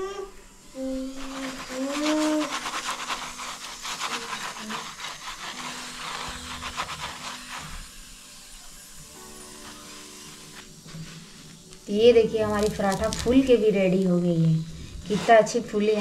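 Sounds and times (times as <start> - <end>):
flatbread sizzling: 0.7 - 16.0
spatula scraping on a griddle: 0.8 - 11.7, 15.0 - 16.0.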